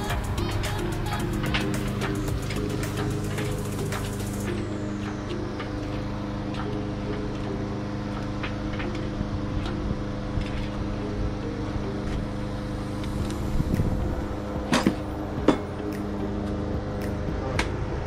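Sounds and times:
background music with low notes: 0.0 - 18.0.

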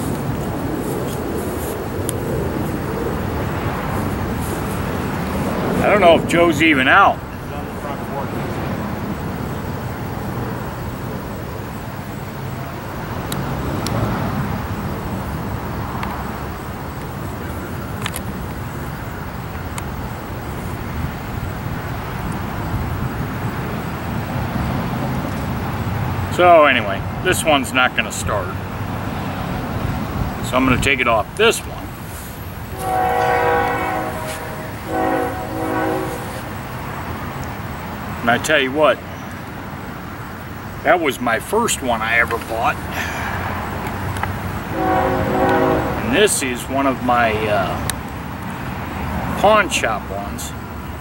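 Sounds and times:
low outdoor rumble: 0.0 - 48.7
train horn blasts: 32.7 - 36.6, 44.7 - 46.4.

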